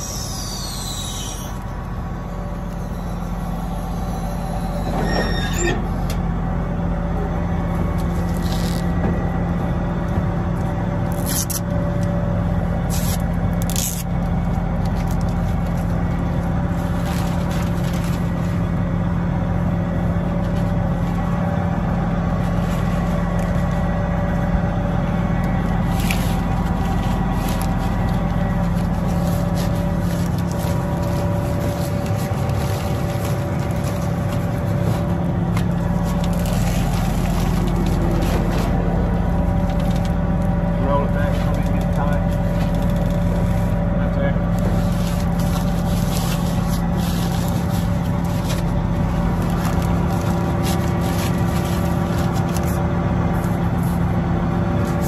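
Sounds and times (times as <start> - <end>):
cotton picker running: 12.4 - 55.0.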